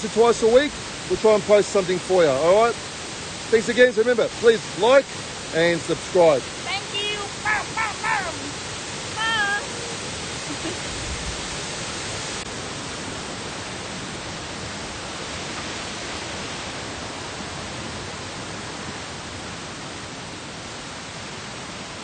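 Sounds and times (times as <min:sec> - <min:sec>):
waterfall rushing: 0:00.0 - 0:22.0
person speaking: 0:06.6 - 0:08.6, 0:09.2 - 0:09.7.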